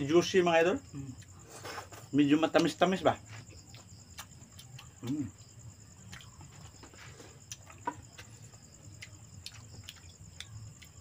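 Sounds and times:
crickets chirping: 0.0 - 11.0
faint chewing: 3.3 - 11.0.

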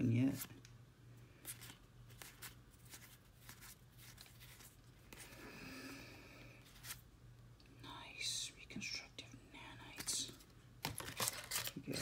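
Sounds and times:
low steady hum: 0.0 - 12.0
trading cards clicking and rustling: 9.9 - 12.0.

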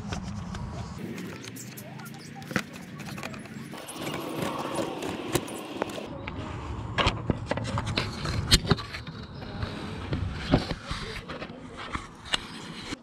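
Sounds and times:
plastic parts clicking and scraping: 0.0 - 13.0.

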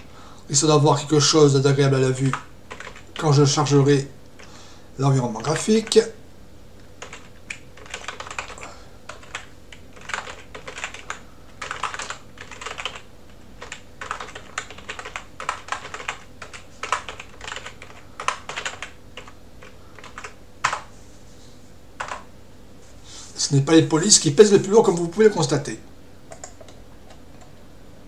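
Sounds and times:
typing on computer keyboard: 2.3 - 3.3, 7.0 - 20.9, 22.0 - 22.3, 26.3 - 27.5.

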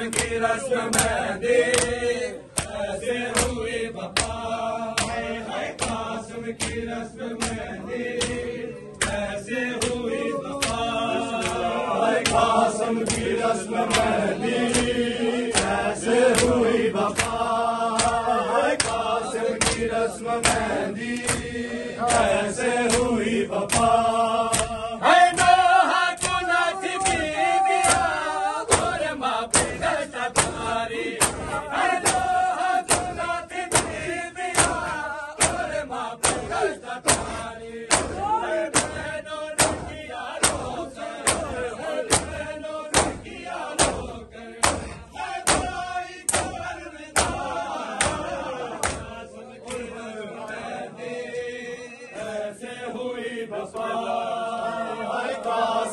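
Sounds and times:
men chanting in unison: 0.0 - 55.9
hands striking chests: 31.2 - 32.3, 32.9 - 39.0, 39.6 - 46.6.

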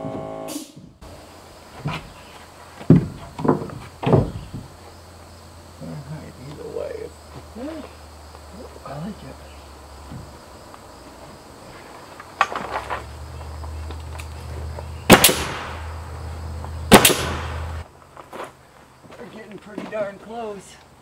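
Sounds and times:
nail gun shots: 15.1 - 15.9, 16.9 - 17.7.

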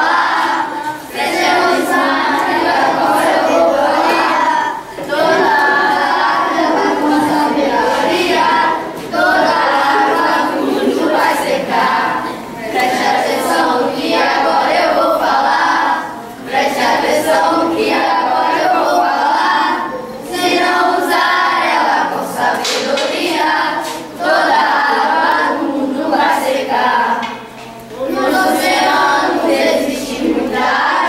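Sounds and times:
children singing: 0.0 - 31.0.

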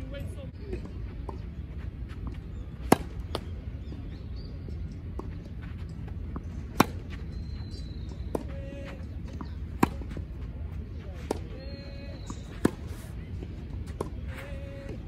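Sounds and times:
low background noise: 0.0 - 15.0
tennis racket striking ball: 9.8 - 10.1.

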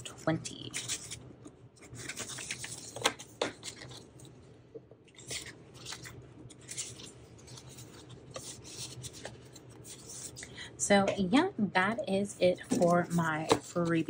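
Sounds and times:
paper rustling: 0.1 - 1.2, 1.8 - 4.3, 5.1 - 10.4, 12.6 - 14.0.

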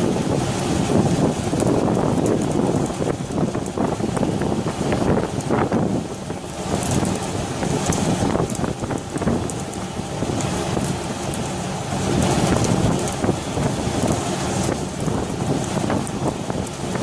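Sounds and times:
sea water splashing: 0.0 - 17.0
wind buffeting microphone: 0.0 - 17.0
wind rushing: 0.0 - 17.0.

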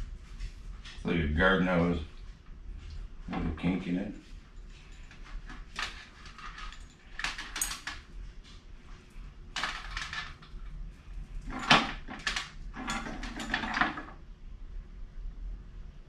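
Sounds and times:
fairy lights rustling and clattering: 2.2 - 14.2.

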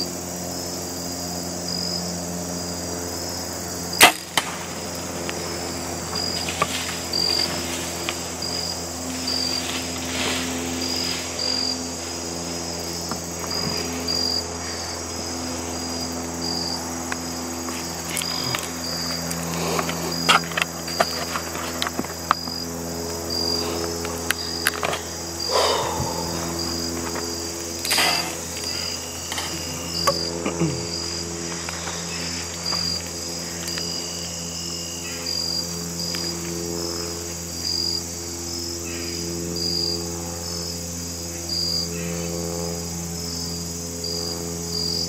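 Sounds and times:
insects chirping: 0.0 - 45.0
bow shot crack: 4.0 - 4.7.

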